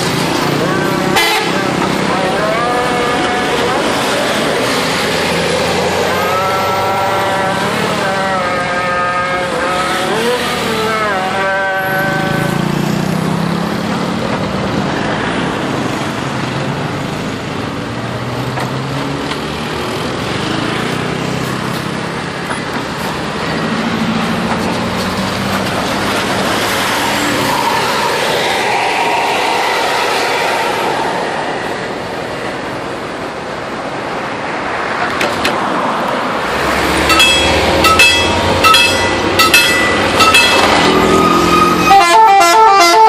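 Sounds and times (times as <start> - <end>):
bus engines rumbling: 0.0 - 43.0
passing traffic road noise: 0.0 - 43.0
multi-tone air horn tune: 1.1 - 1.8, 6.2 - 12.7, 37.1 - 43.0.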